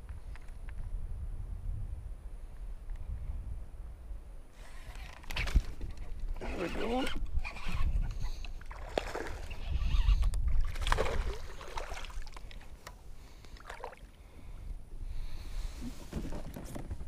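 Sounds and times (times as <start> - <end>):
water lapping against kayak hull: 4.9 - 14.6.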